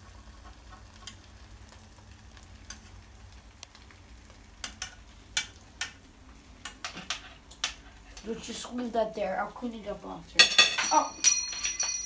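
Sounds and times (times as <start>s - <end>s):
small ticks and crackles: 0.0s - 8.8s
eggs sizzling in a frying pan: 0.0s - 12.0s.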